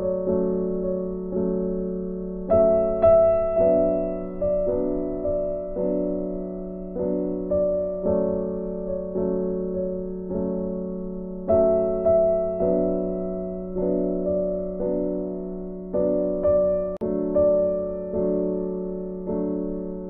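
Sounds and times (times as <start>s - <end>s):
piano music: 0.0s - 20.0s.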